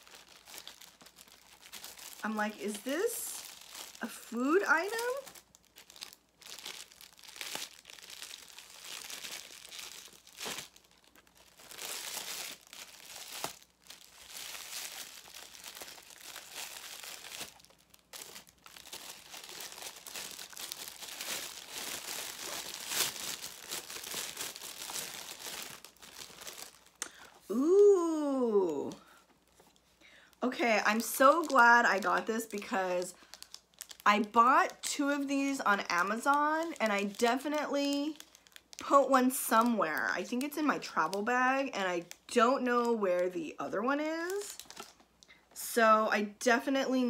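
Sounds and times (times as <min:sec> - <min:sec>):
metallic gift wrap crinkling: 0:00.0 - 0:27.3, 0:44.2 - 0:45.1.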